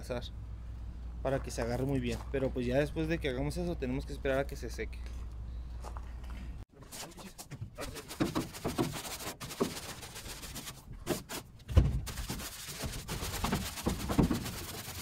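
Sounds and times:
brush scrubbing wet floor: 7.8s - 11.4s, 12.1s - 15.0s.

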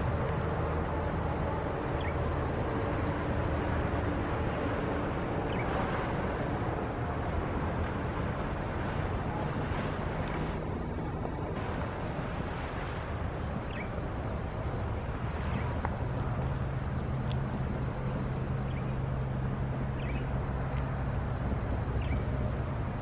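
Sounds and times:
low engine drone: 0.0s - 23.0s
small birds chirping: 13.6s - 15.8s, 20.0s - 20.3s, 21.0s - 22.6s.

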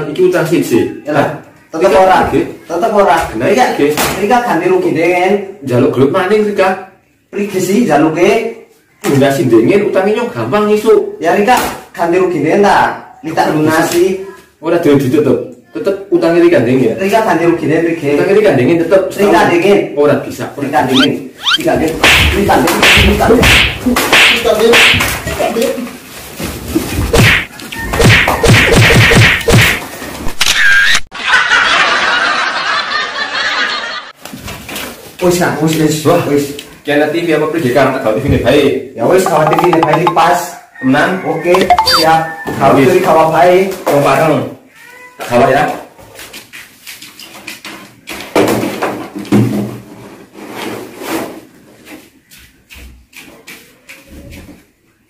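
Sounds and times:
slaps and blows on a body: 22.0s - 25.2s, 27.1s - 29.9s.

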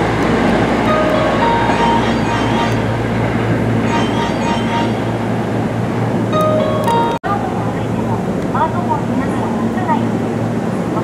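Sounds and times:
train whining tones: 0.0s - 7.2s
train wheels rumbling on rail: 0.0s - 11.0s.

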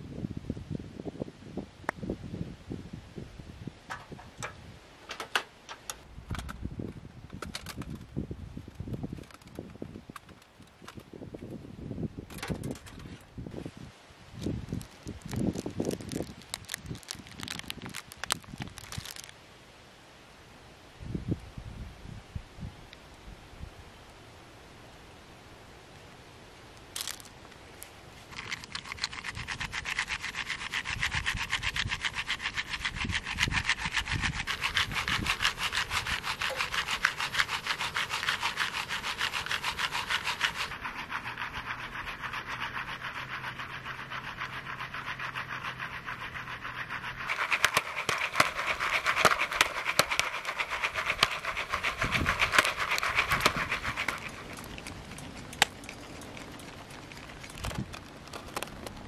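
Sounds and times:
popcorn popping: 47.2s - 59.0s.

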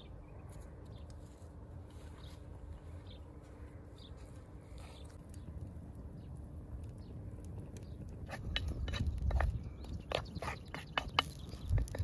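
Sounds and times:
wood fire crackling and popping: 5.2s - 12.0s.

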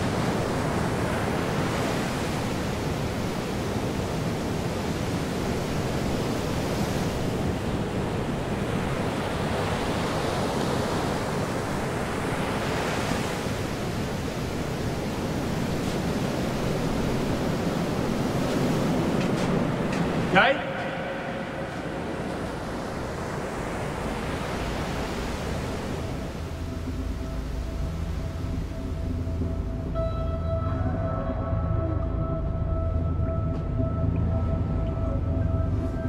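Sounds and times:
ocean surf washing ashore: 0.0s - 30.0s.

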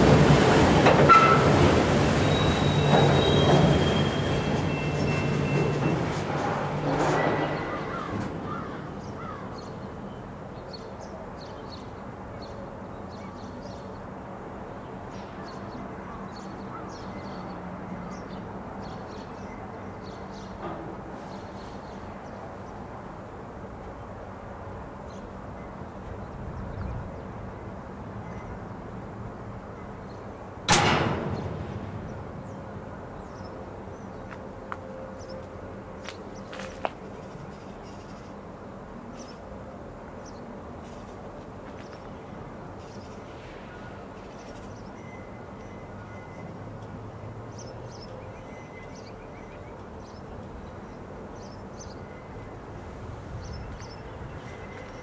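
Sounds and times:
loud bang: 30.7s - 33.3s.

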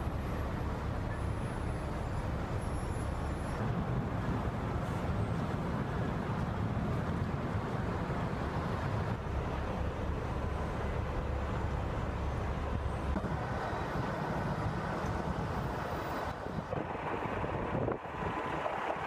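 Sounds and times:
low rumble of traffic: 0.0s - 19.0s
wind buffeting microphone: 12.8s - 19.0s.

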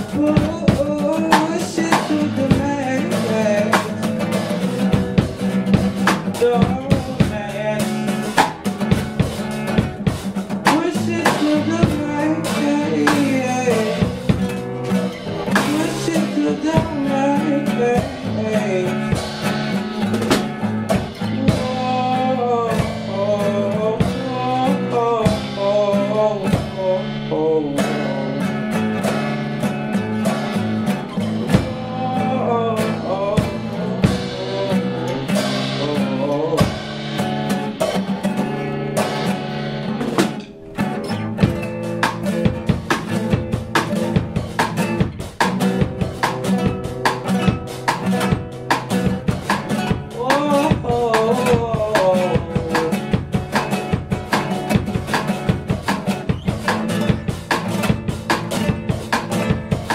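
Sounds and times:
person singing: 0.0s - 5.0s, 5.6s - 8.6s, 10.4s - 20.4s, 21.0s - 29.1s, 31.1s - 37.2s, 49.5s - 55.5s
drum kit: 0.0s - 59.9s
strummed acoustic guitar: 0.0s - 59.9s.

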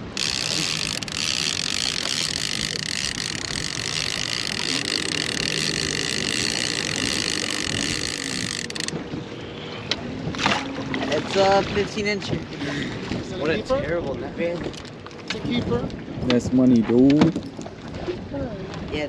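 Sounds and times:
fishing reel whirring: 0.0s - 9.0s.

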